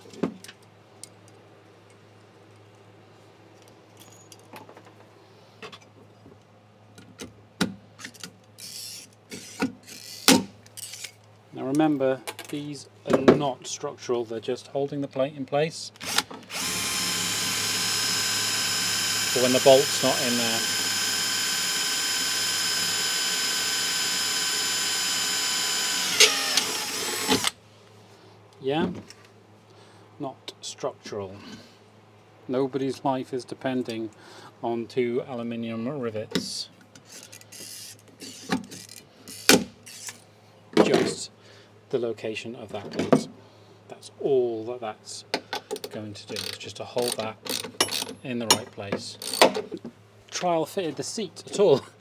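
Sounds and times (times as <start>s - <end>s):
metallic rattles of rivets: 3.6s - 5.1s, 8.0s - 11.4s, 45.6s - 49.7s
electric drill whining: 16.0s - 27.6s.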